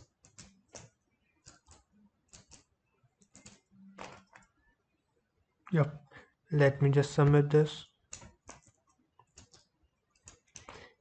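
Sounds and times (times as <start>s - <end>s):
keyboard and mouse clicks: 0.0s - 4.5s, 8.1s - 11.0s.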